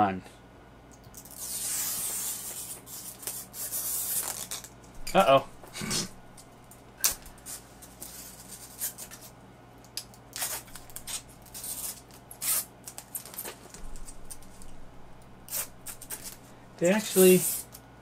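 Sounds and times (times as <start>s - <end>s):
plastic film ripping: 1.2s - 4.7s, 10.3s - 14.7s, 15.5s - 16.4s
plastic film crinkling: 1.2s - 5.7s, 10.3s - 14.8s, 15.5s - 17.7s.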